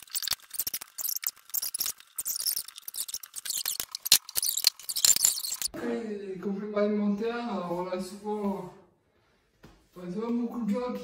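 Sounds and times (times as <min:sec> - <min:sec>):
household items clicking and scraping: 0:00.0 - 0:05.7.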